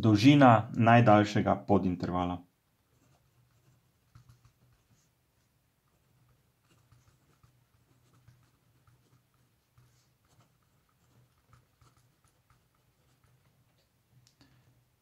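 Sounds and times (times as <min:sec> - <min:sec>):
pen scratching on paper: 0:02.8 - 0:14.0.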